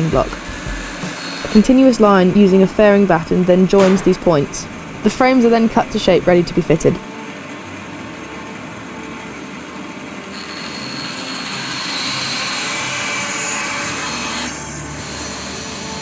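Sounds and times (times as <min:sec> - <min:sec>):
bandsaw running: 0:00.0 - 0:07.1, 0:09.2 - 0:16.0
offcut dropping: 0:00.1 - 0:07.0.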